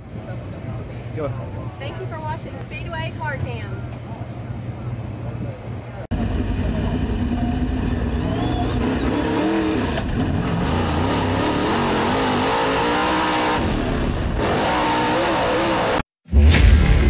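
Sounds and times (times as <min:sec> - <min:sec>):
race car engine revving: 0:06.1 - 0:16.0.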